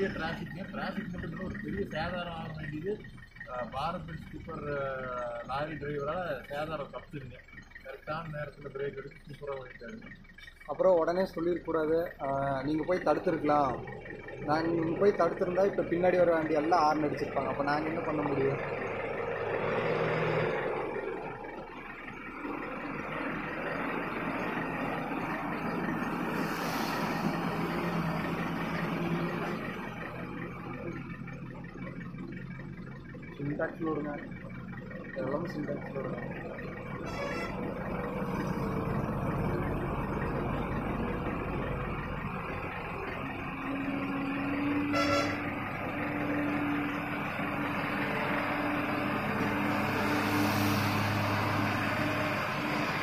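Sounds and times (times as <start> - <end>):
truck diesel engine passing: 0.0 - 53.0
vehicle horn toot: 37.0 - 37.8, 44.8 - 45.6.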